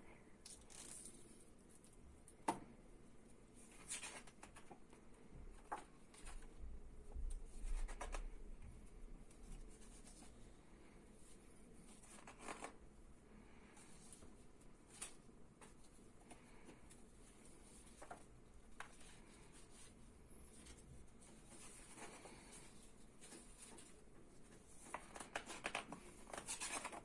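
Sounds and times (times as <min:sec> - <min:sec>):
book pages rustling: 0:03.6 - 0:06.6, 0:07.3 - 0:08.4, 0:11.2 - 0:12.8, 0:13.6 - 0:27.0.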